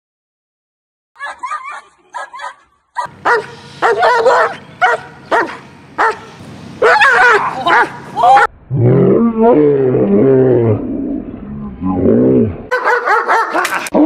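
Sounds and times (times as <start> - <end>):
dog barking: 1.2 - 8.5, 12.7 - 13.8
dog yipping: 1.2 - 8.5, 12.7 - 13.7.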